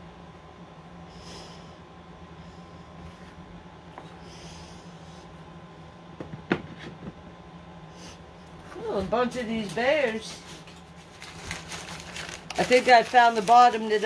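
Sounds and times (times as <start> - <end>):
low room hum: 0.0 - 14.0
person breathing: 1.0 - 3.3, 4.0 - 5.4.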